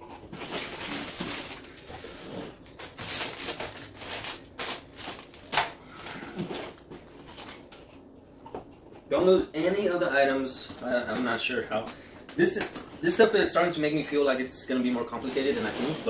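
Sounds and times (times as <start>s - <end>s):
plastic bag crinkling: 0.0s - 1.9s, 2.6s - 7.7s.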